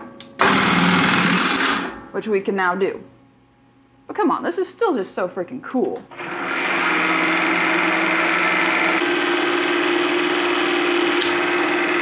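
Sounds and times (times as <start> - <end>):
mill spindle motor humming and whining: 6.1 - 12.0.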